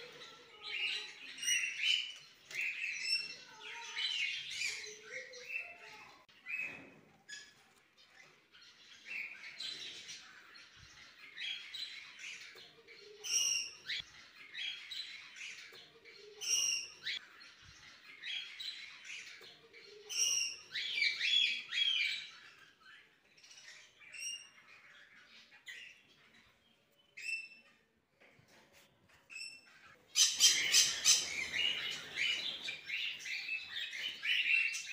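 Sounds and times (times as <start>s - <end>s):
finches chirping: 29.3s - 34.9s.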